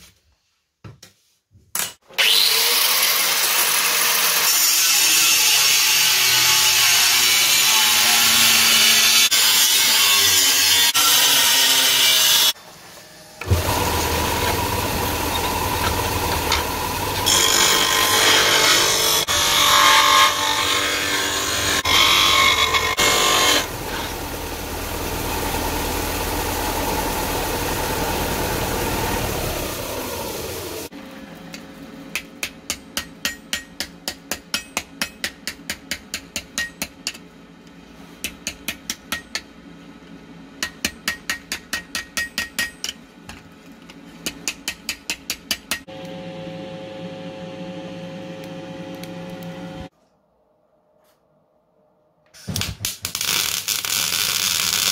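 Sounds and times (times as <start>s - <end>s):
disc sander grinding steel: 13.4s - 30.9s
hammer striking steel plate: 32.2s - 37.2s
steady hum: 45.9s - 49.9s.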